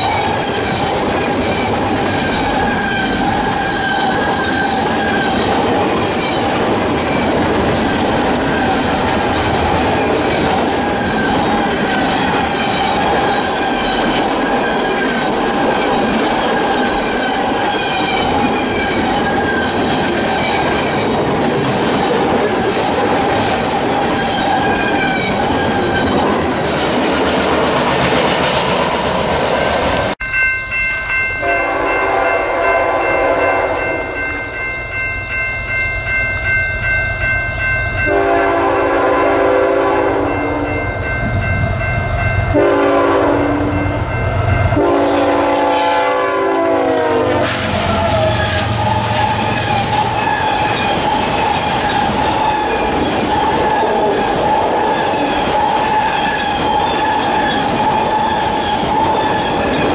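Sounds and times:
freight cars rolling on rails: 0.0 - 30.2, 43.6 - 59.9
wheels squealing: 0.0 - 30.2, 47.5 - 59.9
locomotive air horn: 31.4 - 34.2, 38.1 - 40.7, 42.5 - 43.8, 44.7 - 50.7.

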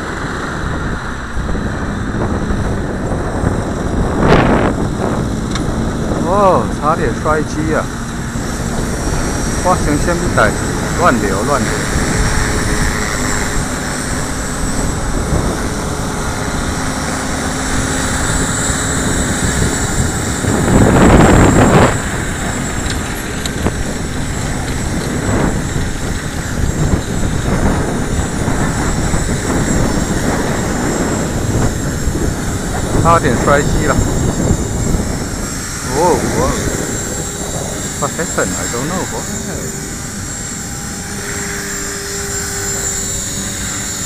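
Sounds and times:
rc helicopter motor whining: 0.0 - 44.0
wind buffeting microphone: 0.0 - 44.0.

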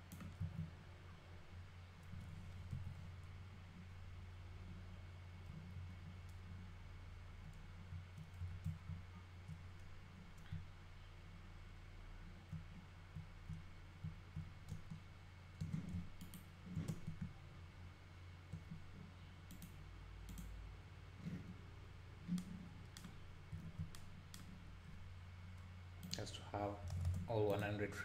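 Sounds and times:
steady low hum: 0.0 - 28.0
computer mouse clicks: 0.1 - 0.7, 7.5 - 10.6, 12.5 - 15.0, 15.6 - 17.3, 19.5 - 20.6, 22.2 - 24.6.

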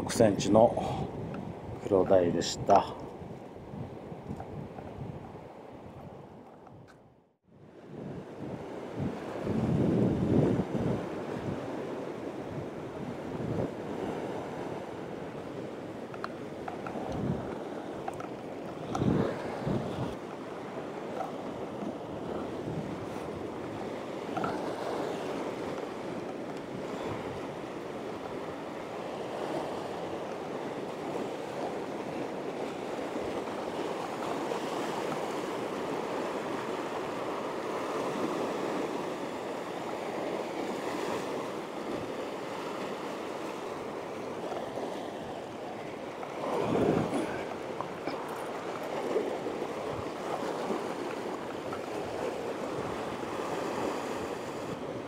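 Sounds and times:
surf rushing against rocks: 8.8 - 55.0
wave breaking over rocks: 44.4 - 54.8.

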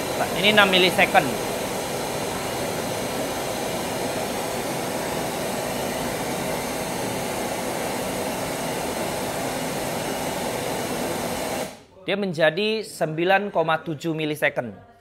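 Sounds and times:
pink noise test signal: 0.0 - 11.8.

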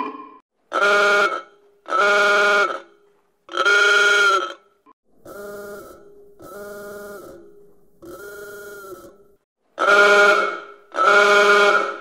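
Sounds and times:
truck horn blasts: 0.8 - 3.0, 9.8 - 12.0.

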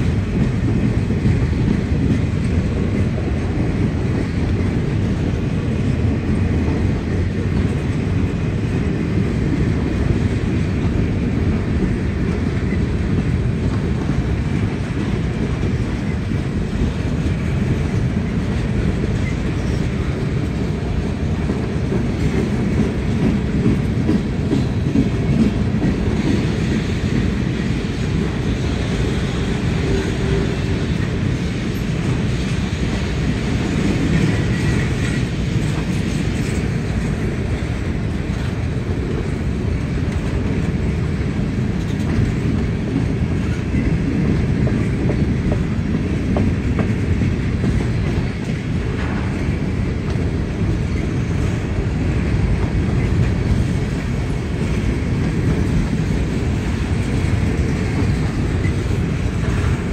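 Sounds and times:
train wheels rumbling on rails: 0.0 - 59.9.

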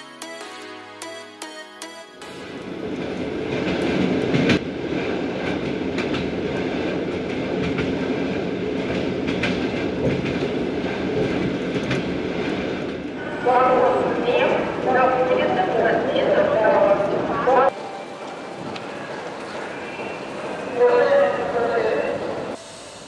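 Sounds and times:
train wheels rolling on rail: 2.9 - 23.0.

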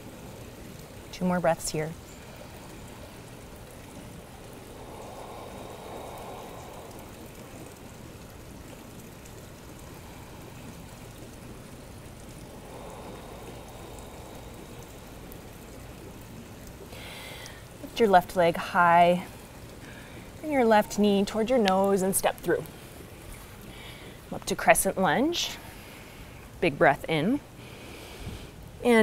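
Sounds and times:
steady background hiss: 0.0 - 29.0
soft breathing: 2.0 - 8.2, 12.3 - 16.2, 16.8 - 17.8, 22.7 - 24.3, 27.6 - 28.6.

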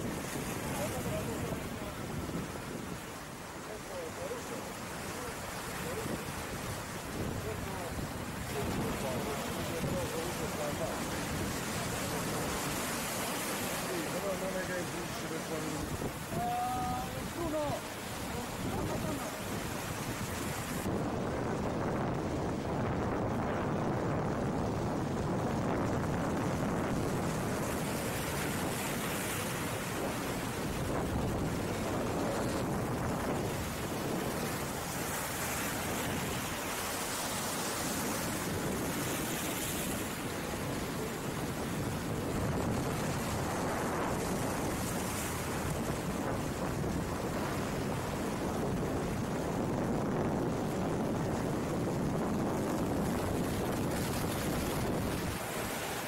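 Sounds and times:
surf breaking over rocks: 0.0 - 56.0.

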